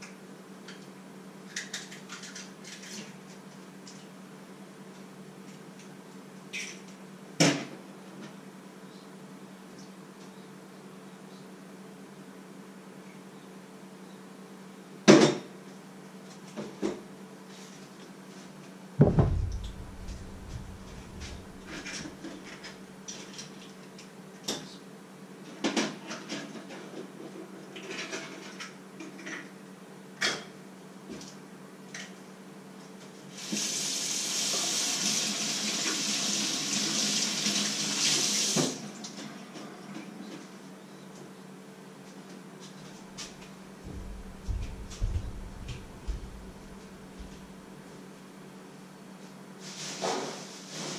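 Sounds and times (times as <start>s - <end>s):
sharp knock: 19.0s - 22.0s, 43.9s - 46.6s
tap running into sink: 19.0s - 22.1s
heavy thud: 19.0s - 22.2s, 43.9s - 47.4s.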